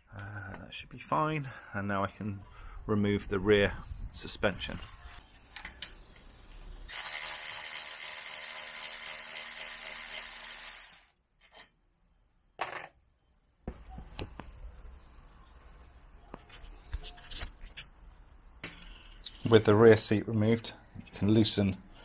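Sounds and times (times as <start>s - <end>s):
electric ratchet running: 6.9s - 11.1s.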